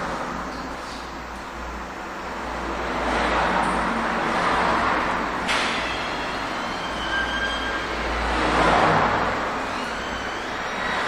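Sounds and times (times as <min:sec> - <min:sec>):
road traffic noise: 0:00.0 - 0:11.0.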